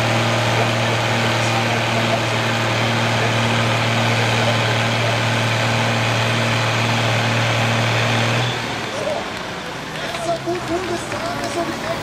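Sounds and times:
tractor diesel engine running hard: 0.0s - 12.0s.

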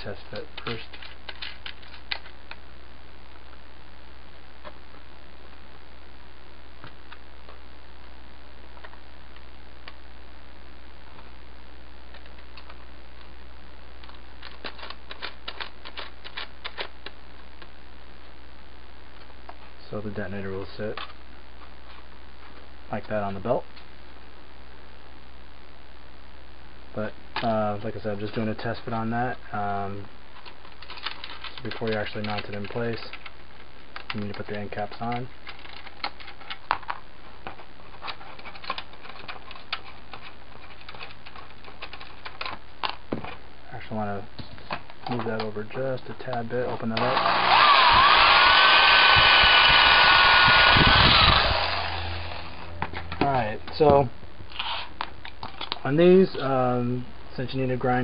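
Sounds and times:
low background hum: 0.0s - 58.0s
plastic parts clicking together: 0.6s - 2.6s, 14.0s - 17.2s, 30.4s - 33.3s, 33.9s - 43.0s, 54.6s - 55.8s.

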